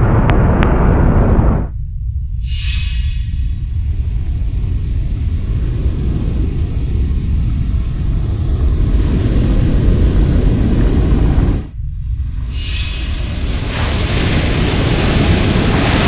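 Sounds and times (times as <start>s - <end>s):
low steady rumble: 0.0s - 16.0s.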